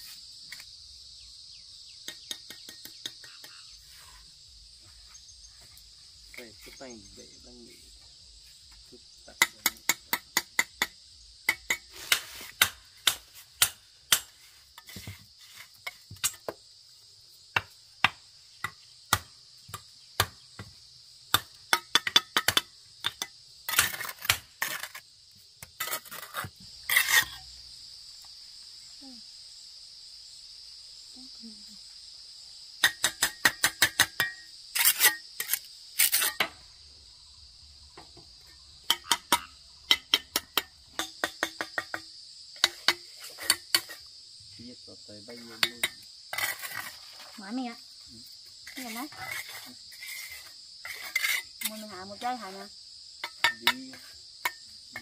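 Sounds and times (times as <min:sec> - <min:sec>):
crickets chirring: 0:00.0 - 0:55.0
trowel tapping bricks: 0:09.4 - 0:15.2, 0:21.3 - 0:25.0, 0:38.9 - 0:44.0, 0:53.2 - 0:55.0.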